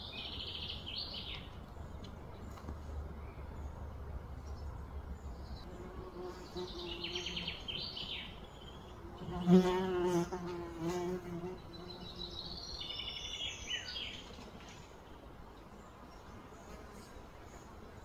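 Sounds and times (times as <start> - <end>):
birds chirping: 0.0 - 17.8
flying insect buzzing: 9.0 - 12.3.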